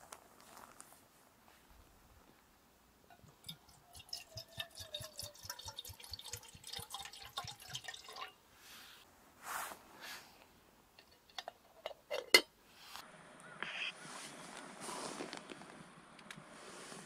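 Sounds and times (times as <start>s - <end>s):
water pouring into metal pot: 3.1s - 8.4s
short rustle: 14.0s - 15.7s.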